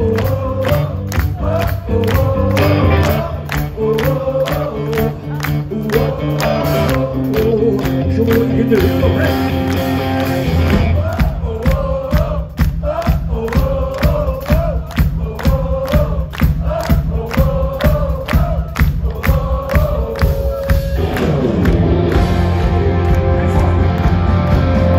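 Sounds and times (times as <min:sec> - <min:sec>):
drums with steady beat: 0:00.0 - 0:24.9
electric guitar: 0:04.4 - 0:11.1, 0:20.7 - 0:24.9.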